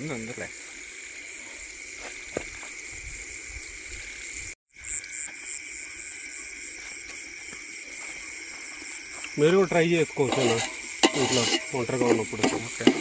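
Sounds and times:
night insects chirring: 0.0s - 13.0s
ladle clicking on steel pot: 10.3s - 13.0s.

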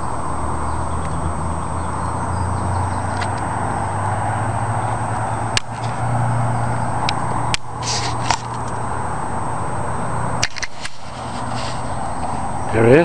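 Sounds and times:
microphone handling clicks: 10.4s - 12.5s.

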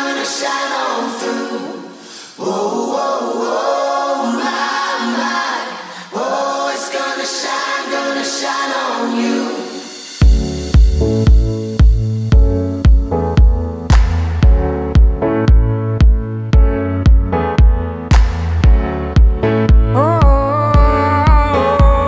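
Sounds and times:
choir singing a cappella: 0.0s - 10.2s.

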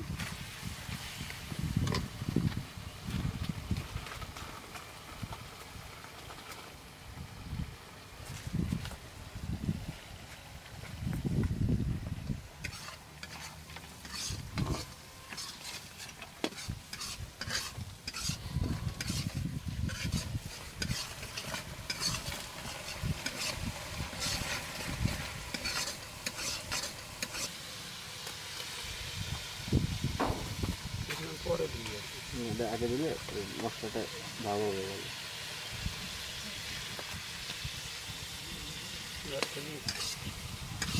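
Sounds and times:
metal spatula scraping wok: 12.6s - 27.7s, 39.1s - 40.9s
paste sizzling: 12.6s - 40.9s.

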